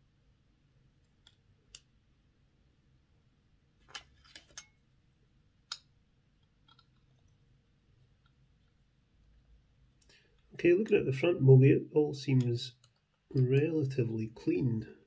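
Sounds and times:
clicks of small parts handled: 0:03.8 - 0:04.8, 0:06.6 - 0:07.3.

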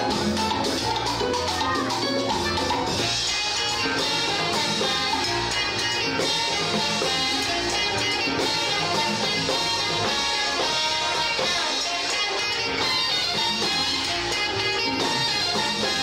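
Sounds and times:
bass: 0:00.0 - 0:16.0
drum kit: 0:00.0 - 0:16.0
electric guitar: 0:00.0 - 0:16.0
horns: 0:00.0 - 0:16.0
latin percussion: 0:00.0 - 0:16.0.

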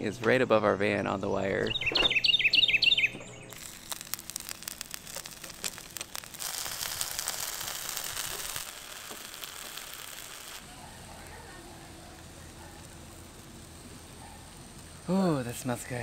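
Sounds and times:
small bird chirping: 0:01.6 - 0:06.4
batter sizzling in a pan: 0:03.5 - 0:16.0.

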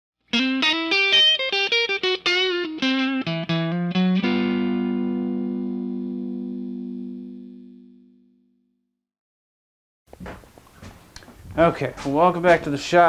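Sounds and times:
guitar riff: 0:00.3 - 0:08.6.

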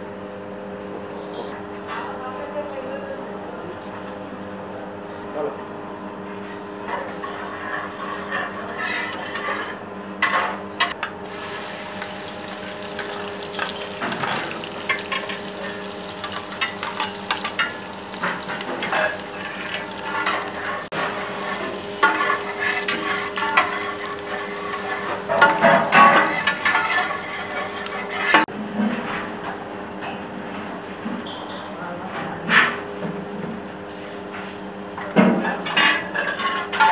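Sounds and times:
metal spatula scraping a pot: 0:07.0 - 0:10.5, 0:12.8 - 0:28.5, 0:36.0 - 0:36.8
oil sizzling in a metal pot: 0:11.2 - 0:28.5.

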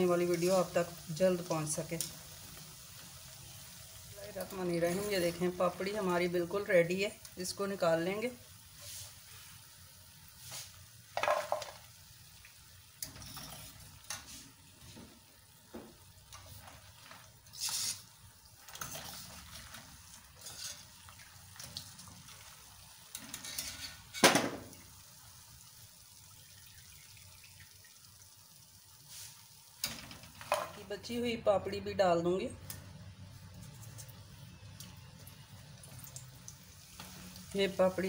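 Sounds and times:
faint oil sizzle: 0:00.0 - 0:38.0
skimmer scraping metal pan: 0:18.7 - 0:20.9, 0:23.2 - 0:24.3.

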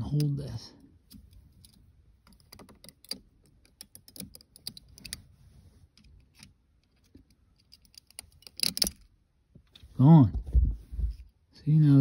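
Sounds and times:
screwdriver clicking and scraping plastic: 0:01.1 - 0:05.2, 0:06.0 - 0:09.1.

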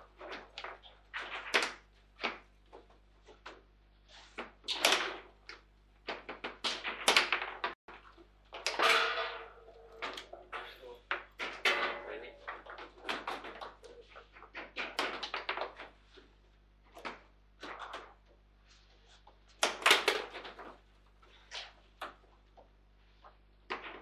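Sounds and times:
rods thudding: 0:08.5 - 0:13.6.

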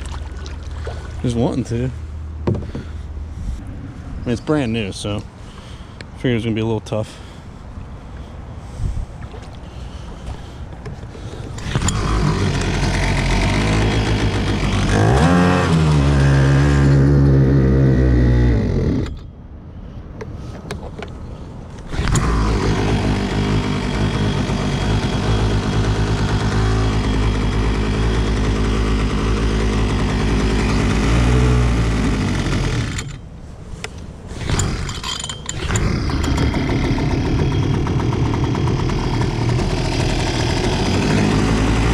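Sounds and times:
outboard motor running: 0:09.2 - 0:19.2, 0:21.8 - 0:33.2, 0:34.3 - 0:41.9.

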